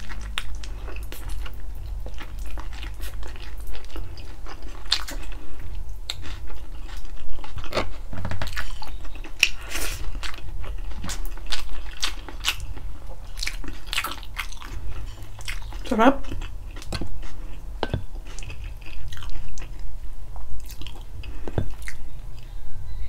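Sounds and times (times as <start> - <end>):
person chewing and lip-smacking: 0.0 - 22.6.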